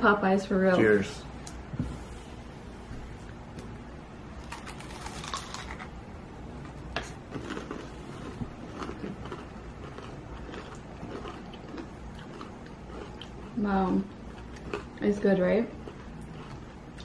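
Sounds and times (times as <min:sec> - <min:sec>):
crunchy coating bitten and chewed: 0:04.4 - 0:06.0, 0:07.0 - 0:13.6.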